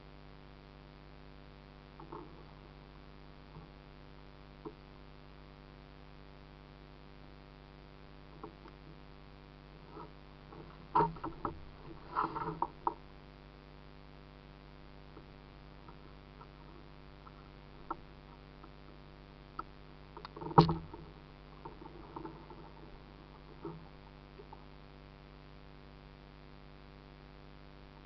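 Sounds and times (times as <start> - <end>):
knocks and clatter: 20.2 - 22.8.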